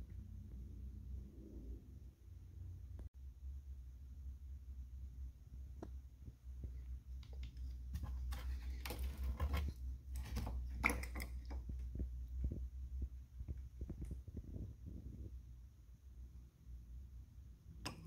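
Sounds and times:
steady low hum: 0.0s - 18.0s
plastic scraping and rattling: 7.2s - 11.9s.

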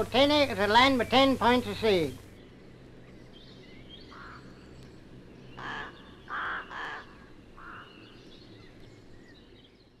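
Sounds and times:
faint steady hiss: 0.0s - 10.0s
crow cawing: 4.1s - 4.6s, 5.5s - 8.3s.

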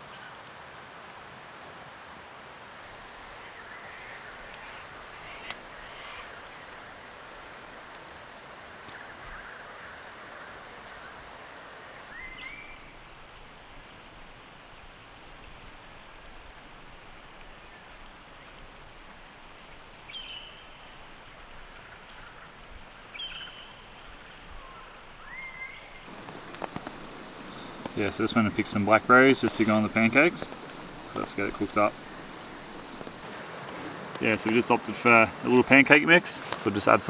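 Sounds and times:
background hiss: 0.0s - 37.0s
rising whistled bird calls: 12.1s - 13.0s, 20.1s - 21.0s, 22.5s - 34.0s
faint high insect trill: 16.8s - 34.0s.

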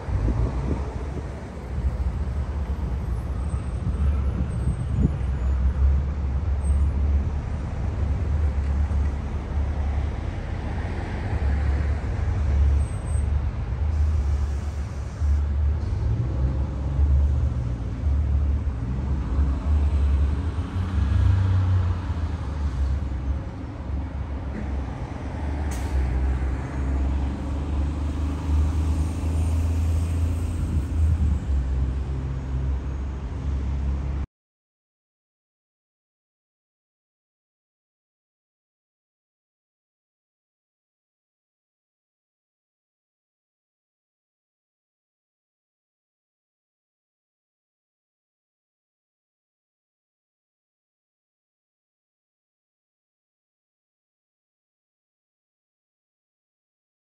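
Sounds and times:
cars passing: 0.0s - 34.2s.

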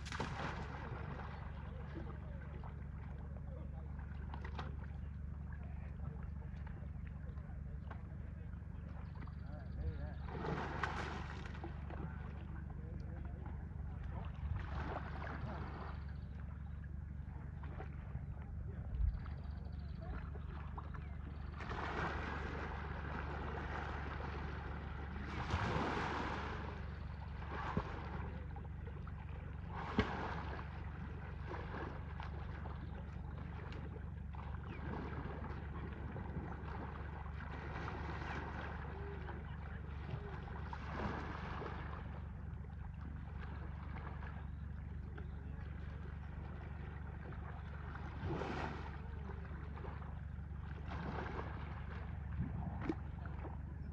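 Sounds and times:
sharp water slaps: 0.0s - 1.2s, 29.7s - 30.6s
elephants splashing in water: 0.0s - 2.4s, 10.2s - 12.2s, 21.4s - 42.3s, 46.0s - 53.6s
steady low rumble: 0.0s - 53.9s.

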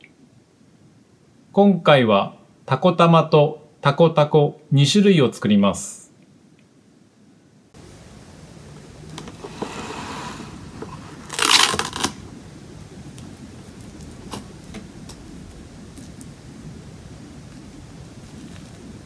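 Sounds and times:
cling film pulled off roll: 9.1s - 12.2s
plastic crinkling: 10.5s - 12.2s, 17.5s - 19.0s
cling film tearing: 11.1s - 12.2s.

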